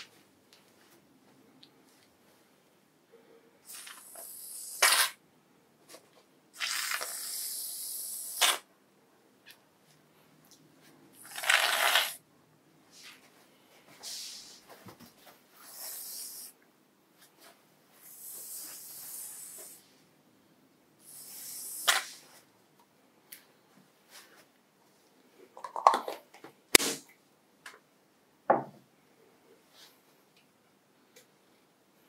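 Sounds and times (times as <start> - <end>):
aerosol can hissing: 3.7 - 5.1, 6.6 - 8.6, 15.7 - 16.5, 18.1 - 19.9, 21.0 - 22.2.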